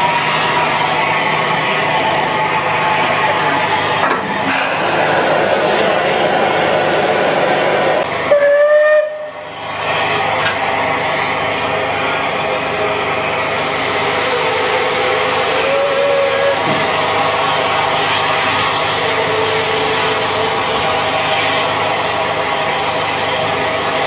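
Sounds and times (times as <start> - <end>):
steam hissing: 0.2 - 9.0, 12.4 - 24.0
steam locomotive whistle: 8.2 - 9.5, 14.1 - 16.8.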